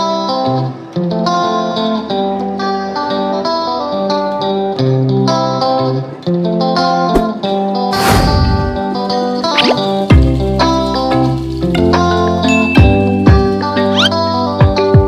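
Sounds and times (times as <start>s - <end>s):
plucked string tune: 8.8s - 14.7s.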